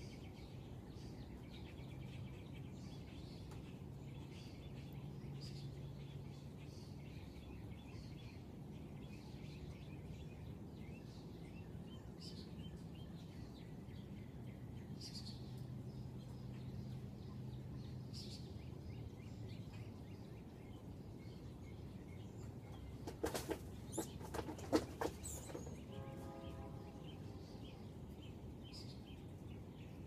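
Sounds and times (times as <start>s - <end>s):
low steady hum: 25.4s - 30.0s.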